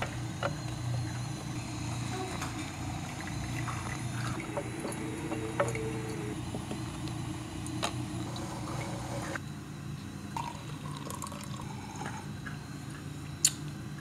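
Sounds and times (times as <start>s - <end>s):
low hum: 0.0s - 9.6s
coffee pouring into metal cup: 2.4s - 6.7s, 10.4s - 12.3s.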